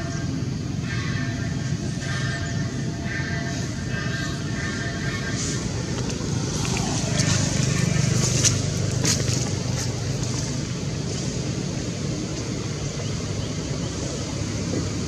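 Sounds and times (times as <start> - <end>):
vehicle engine passing by: 4.6 - 15.0.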